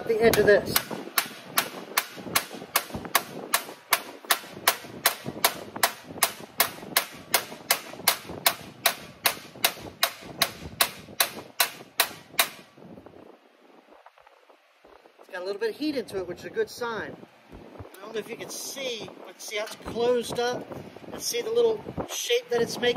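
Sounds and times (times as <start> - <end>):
hammer striking sheet metal: 0.3 - 12.7.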